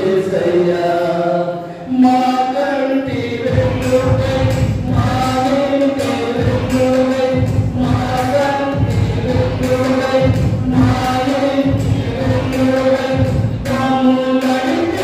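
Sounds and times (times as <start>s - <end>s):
group singing a hymn: 3.1s - 15.0s.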